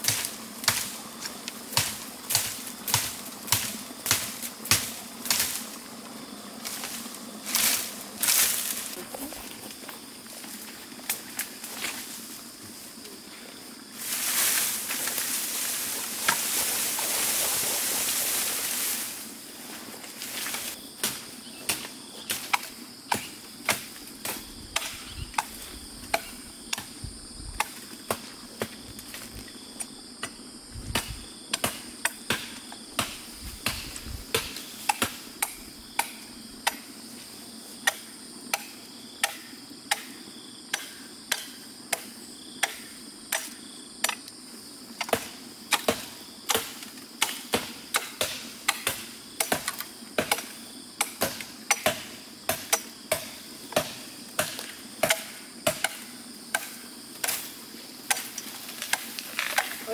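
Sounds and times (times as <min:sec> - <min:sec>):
blade chopping bamboo: 0:00.0 - 0:01.0, 0:01.7 - 0:05.6, 0:31.0 - 0:36.9, 0:37.8 - 0:44.2, 0:45.0 - 0:57.5, 0:58.1 - 0:59.8
high insect drone: 0:00.0 - 0:59.9.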